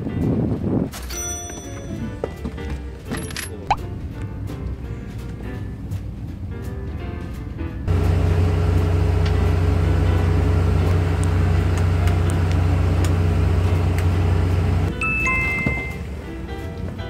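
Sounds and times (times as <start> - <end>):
boat engine running: 7.9 - 15.0.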